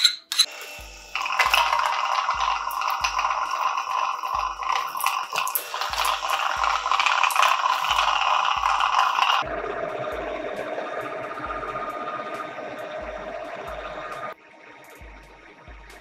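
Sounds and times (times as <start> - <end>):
hand mixer whipping cream: 0.6 - 9.5.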